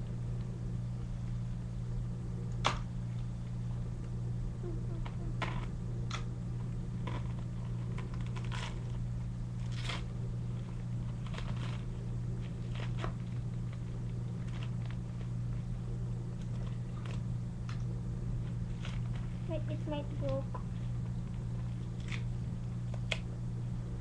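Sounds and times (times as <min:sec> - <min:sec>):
steady low hum: 0:00.0 - 0:24.0
plastic bag crinkling: 0:07.0 - 0:09.0.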